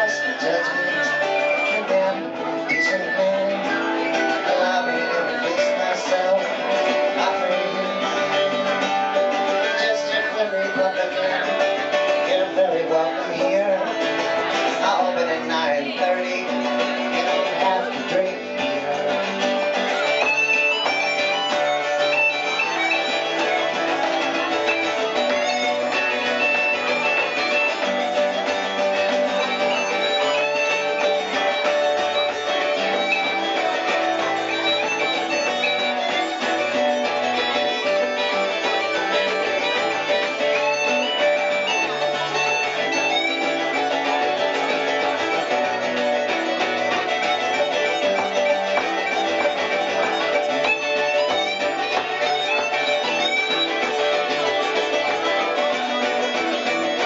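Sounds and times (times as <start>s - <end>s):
strummed acoustic guitar: 0.0s - 57.0s.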